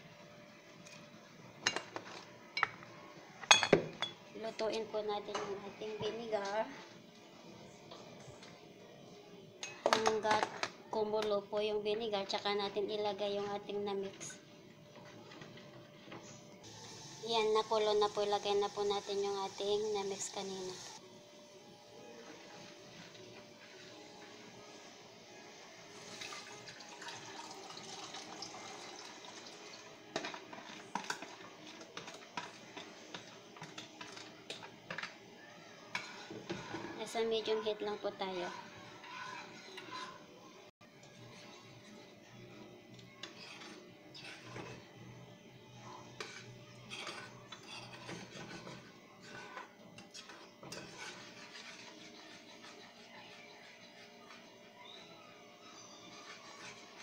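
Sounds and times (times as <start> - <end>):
liquid pouring with splashing: 26.0 - 29.9
metal spoon scraping saucepan: 38.3 - 40.2, 46.2 - 55.0, 55.8 - 57.0.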